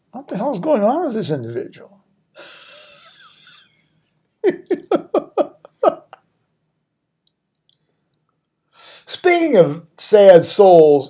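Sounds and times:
man laughing: 2.4s - 6.3s.

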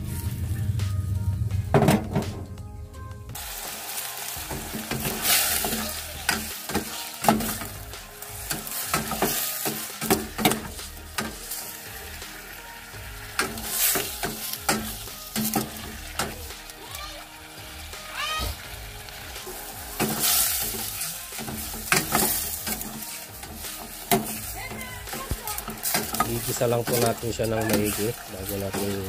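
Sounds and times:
livers sizzling in hot oil: 0.0s - 2.3s, 3.3s - 29.0s
metal ladle scraping a pot: 19.5s - 29.0s.

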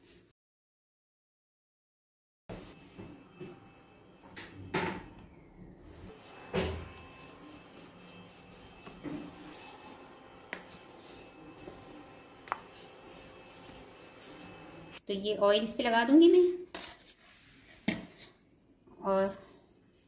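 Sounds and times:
rolling pin rolling dough: 6.1s - 15.0s.

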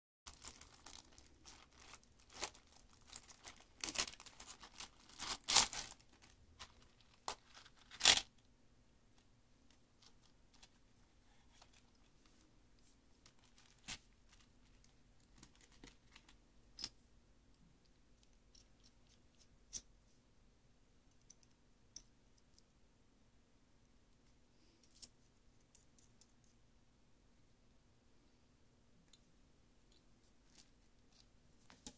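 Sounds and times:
plastic packaging crinkling and tearing: 0.3s - 8.3s, 13.4s - 16.3s.

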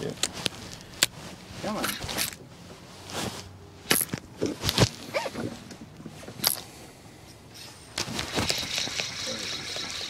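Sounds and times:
short squeaks: 5.1s - 5.5s.

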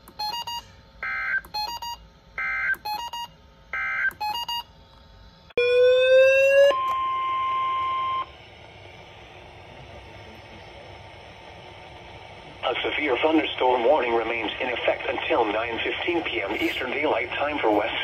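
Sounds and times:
weather radio alarm tone: 5.6s - 8.3s.

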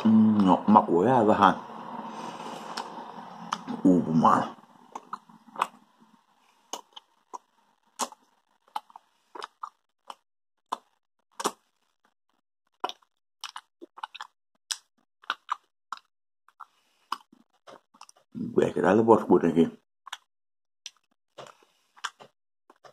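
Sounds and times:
mouth chewing candy smacks: 4.9s - 5.9s, 6.7s - 12.0s, 12.7s - 18.2s, 20.1s - 22.9s.

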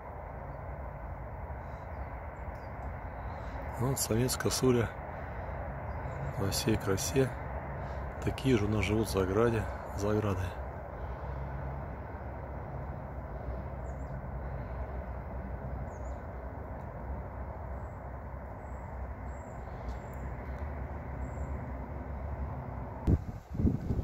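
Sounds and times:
low outdoor rumble: 0.0s - 24.0s
faint high bird chirps: 15.8s - 16.4s.

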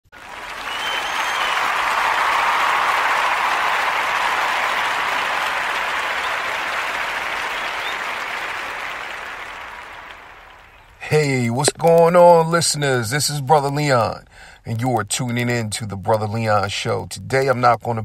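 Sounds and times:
crowd applause: 0.0s - 11.4s.

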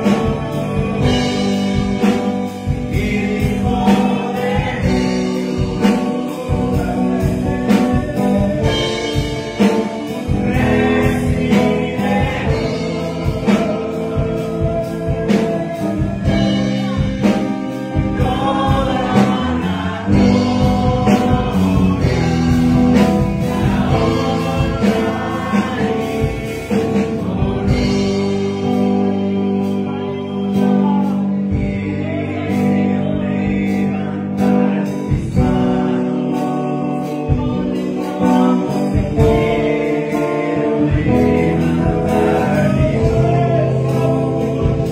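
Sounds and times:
man singing into a microphone: 0.0s - 44.9s
music with a steady beat: 0.0s - 44.9s.

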